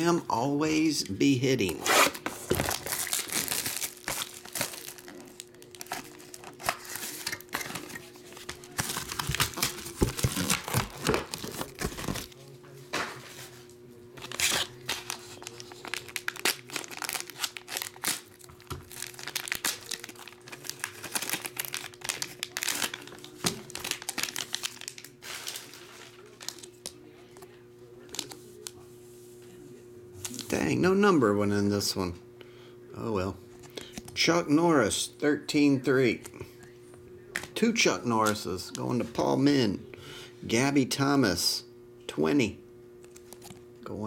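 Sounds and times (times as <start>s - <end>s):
foil wrapper crinkling and tearing: 1.6s - 12.4s, 14.1s - 27.0s.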